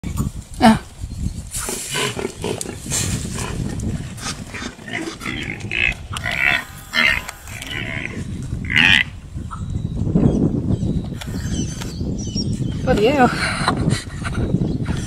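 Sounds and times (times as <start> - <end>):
animal cries and grunts: 1.6 - 9.1.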